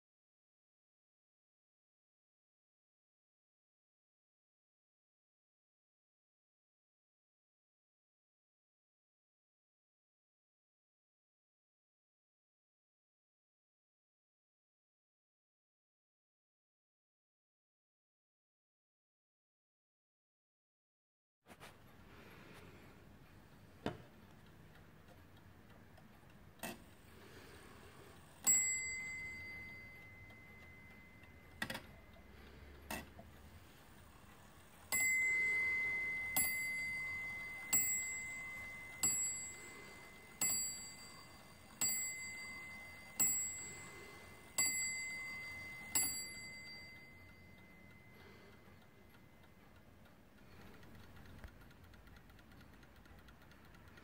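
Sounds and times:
clock movement clicks: 21.7 - 54.0
clock bell striking: 28.4 - 31.4, 34.9 - 48.1.

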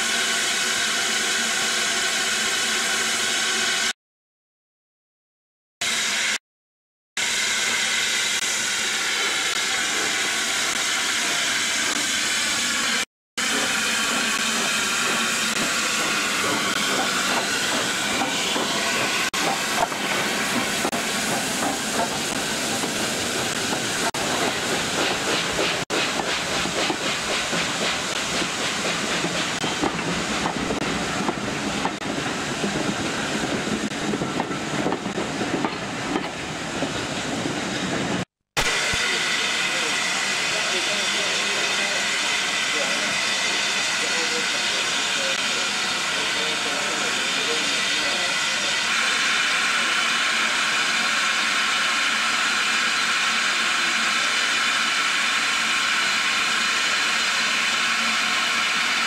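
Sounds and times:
steam locomotive hissing: 0.0 - 3.9, 7.2 - 59.0
train wheels clattering on rails: 13.5 - 33.0.

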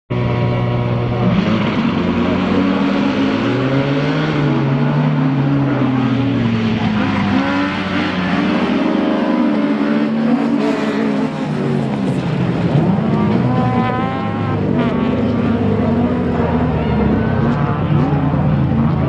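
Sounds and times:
racing car engines revving: 0.1 - 19.0.

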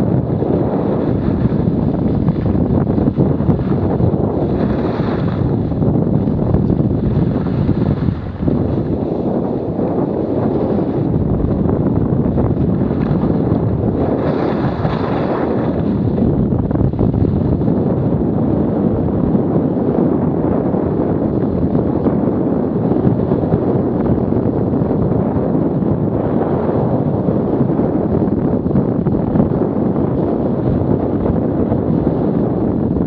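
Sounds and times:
wind on microphone: 0.0 - 33.0
skis scraping on snow: 3.2 - 5.5, 14.0 - 15.8.

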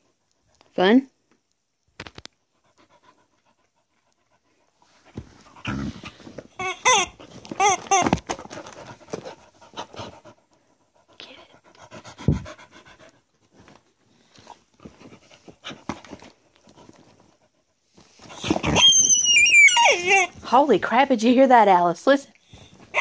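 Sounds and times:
dog panting: 2.5 - 6.3, 8.3 - 13.5
squeaky toy squeaks: 6.5 - 8.2, 18.4 - 20.4.

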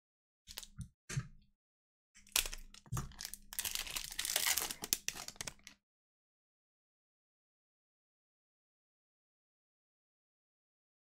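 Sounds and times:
wrapper tearing and crinkling: 2.2 - 5.8.

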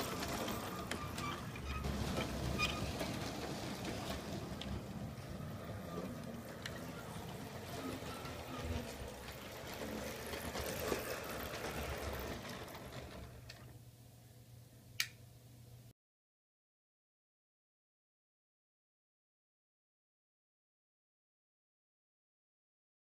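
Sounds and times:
wheels clicking over rail joints: 0.0 - 13.8.

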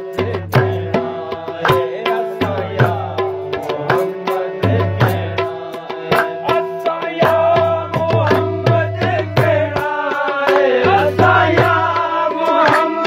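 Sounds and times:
man singing: 0.0 - 13.0
tabla drumming: 0.0 - 13.0
hands clapping: 10.5 - 10.8, 12.6 - 13.0.

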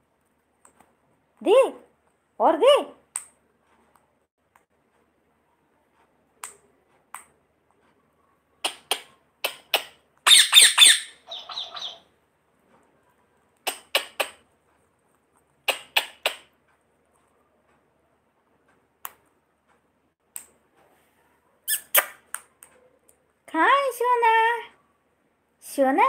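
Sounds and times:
parakeet squawking: 9.5 - 12.1.

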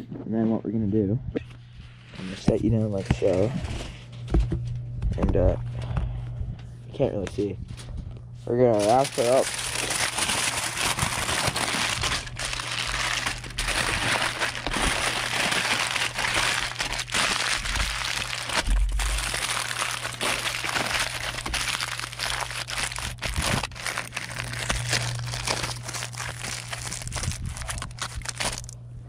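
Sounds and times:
aluminium foil crinkling: 8.6 - 28.8.

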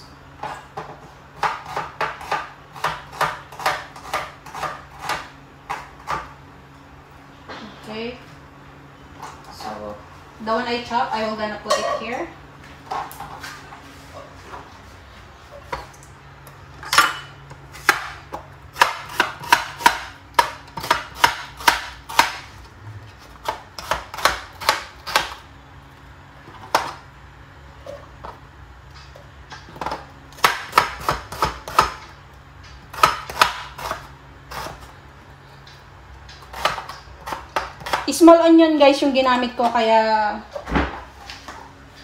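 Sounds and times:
knife chopping on plastic board: 0.8 - 6.3, 17.8 - 22.5, 23.4 - 25.4, 29.6 - 32.1, 32.9 - 34.8, 36.4 - 38.1.

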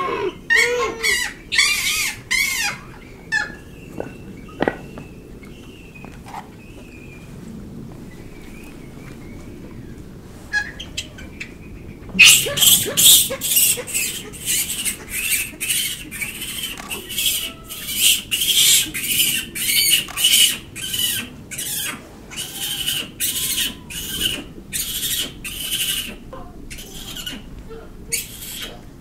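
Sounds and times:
monkeys soft coos: 0.0 - 5.6, 10.5 - 29.0
monkeys shrill calls: 0.0 - 5.7, 10.5 - 28.9.

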